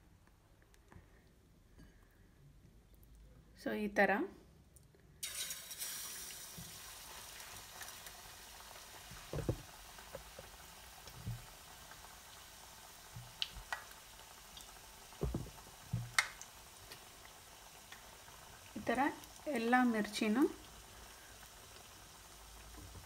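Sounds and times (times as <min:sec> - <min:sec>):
deep-frying bubbling sizzle: 0:05.2 - 0:23.0
soft knocks: 0:09.2 - 0:10.4, 0:15.2 - 0:16.2.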